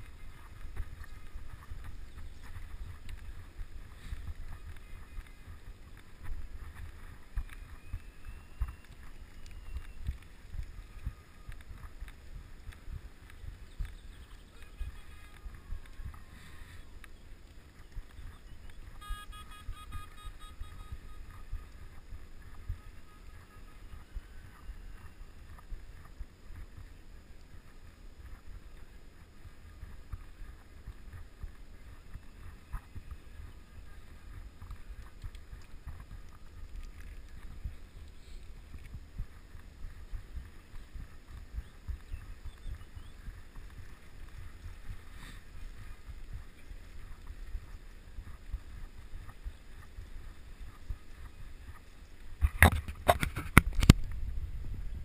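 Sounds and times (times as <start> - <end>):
wind buffeting microphone: 0.0 - 55.0
pitched call or whistle: 19.0 - 21.4.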